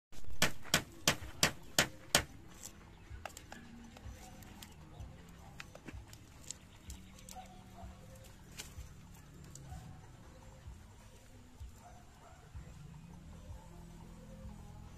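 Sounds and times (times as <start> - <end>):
knocking on bamboo: 0.2 - 2.4.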